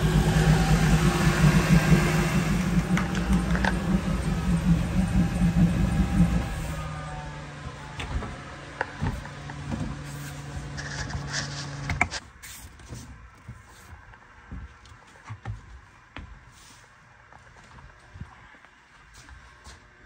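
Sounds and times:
motor humming: 0.0 - 11.2.

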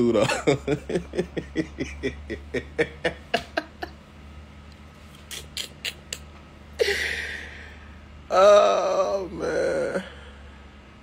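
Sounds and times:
man laughing: 0.0 - 4.0, 6.8 - 7.7
steady low hum: 0.0 - 11.0.

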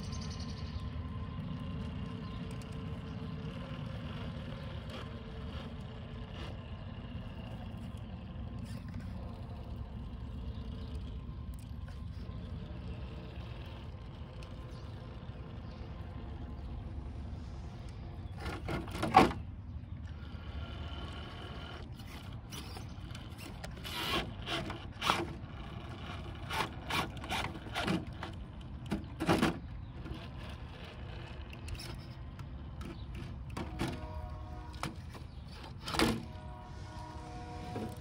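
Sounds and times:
toy car motor whining: 1.0 - 16.0, 20.0 - 38.0.

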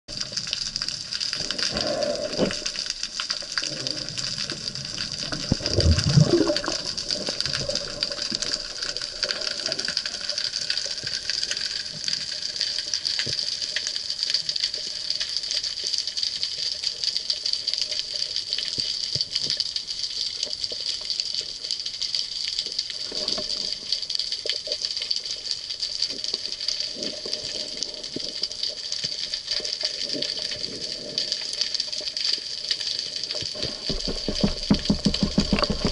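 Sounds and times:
low gurgling rush of water: 0.1 - 15.2, 26.0 - 35.9
underwater hiss with crackling clicks: 0.1 - 35.9.

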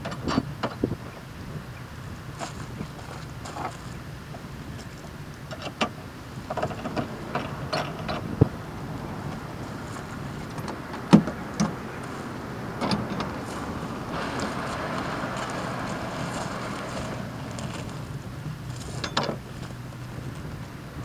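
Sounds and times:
pod sliding rumble: 4.8 - 21.0.

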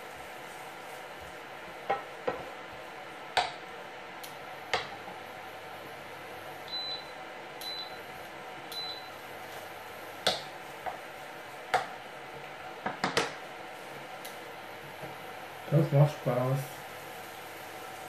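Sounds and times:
wooden spoon stirring in pan: 0.0 - 3.8, 8.3 - 18.0
faint steady hiss: 0.0 - 18.0.

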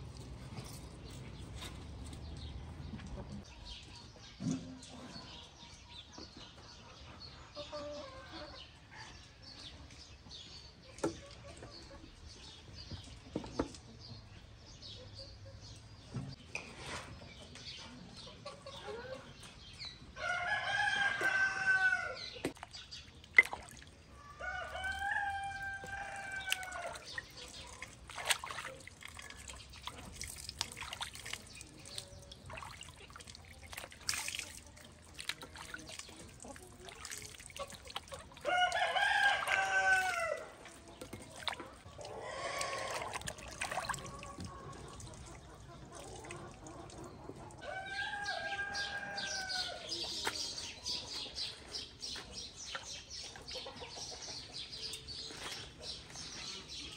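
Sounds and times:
rooster crowing: 20.2 - 22.2, 38.5 - 40.5
vegetables washed in water: 22.4 - 47.6.

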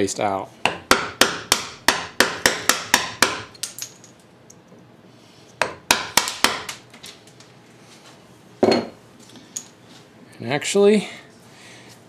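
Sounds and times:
mallet striking chisel: 0.6 - 3.5, 5.6 - 6.8.

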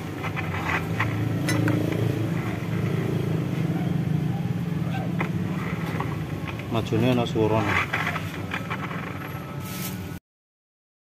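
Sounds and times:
scooter engine running: 0.0 - 9.6
rough gearbox noise: 0.0 - 10.1.

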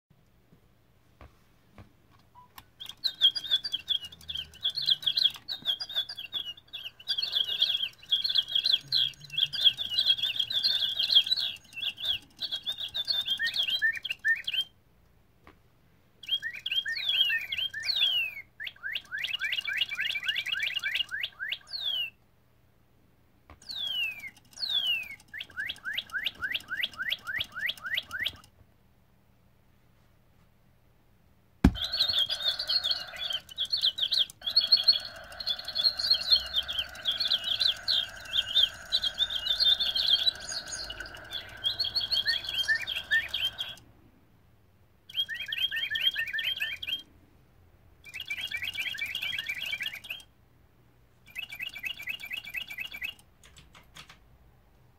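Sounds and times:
electronic bird toys chirping: 2.4 - 14.7, 16.2 - 22.2, 23.6 - 28.5, 31.7 - 43.8, 45.1 - 47.1, 48.0 - 50.3, 51.3 - 53.2.

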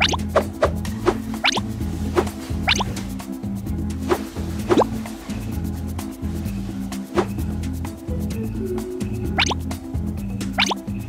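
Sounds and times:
playful music with bass line: 0.0 - 11.0
whistle-like glide: 1.4 - 1.7.

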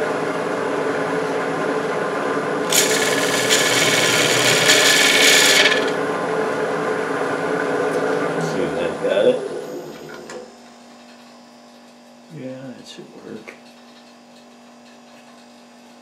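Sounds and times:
hiss of gouge cutting shavings: 2.7 - 6.0
wood lathe humming: 2.7 - 6.0.

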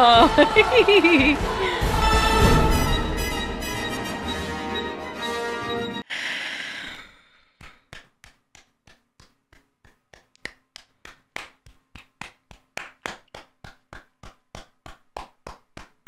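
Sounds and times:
woman clapping hands: 7.6 - 16.0.

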